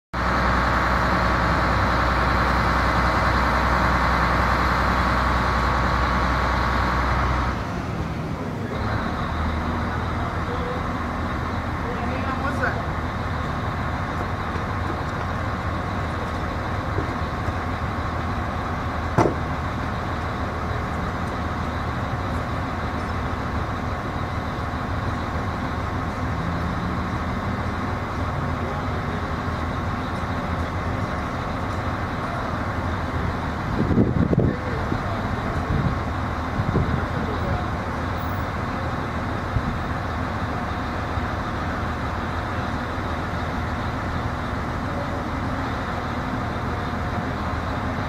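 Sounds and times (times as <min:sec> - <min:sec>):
crane engine running: 0:00.2 - 0:48.0.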